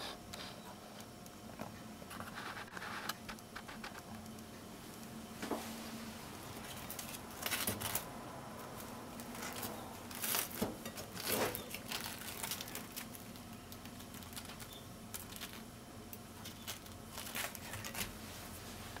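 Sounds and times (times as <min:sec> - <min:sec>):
bread rustling and brushing: 0:16.6 - 0:19.0.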